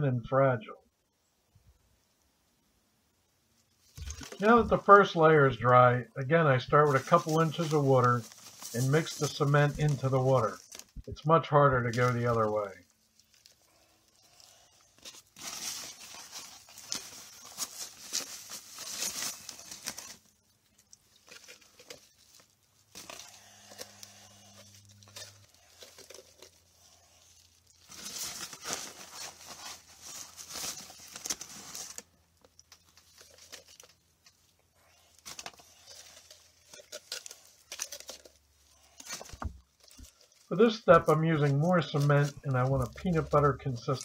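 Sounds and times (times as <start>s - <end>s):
stick stirring gritty mix: 6.6s - 11.1s.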